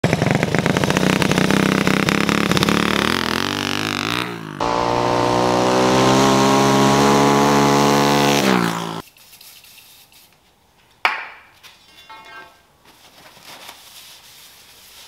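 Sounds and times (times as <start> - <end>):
small engine revving: 0.0 - 9.0.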